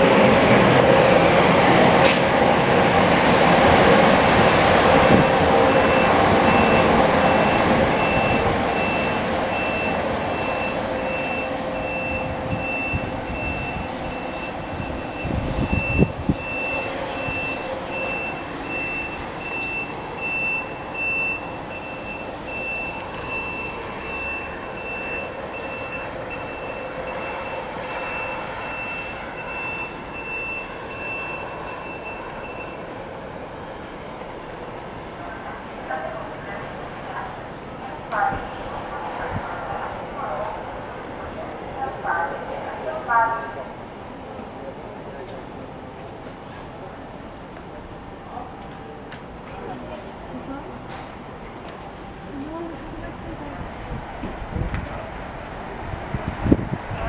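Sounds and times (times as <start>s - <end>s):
train rumbling away: 0.0s - 57.0s
high-pitched beeping tone: 5.2s - 32.8s.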